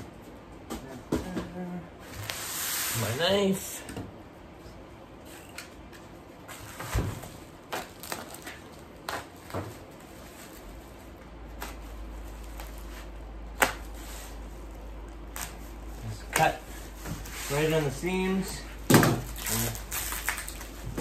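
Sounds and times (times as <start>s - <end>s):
plastic crackling: 7.7s - 13.0s, 18.9s - 21.0s.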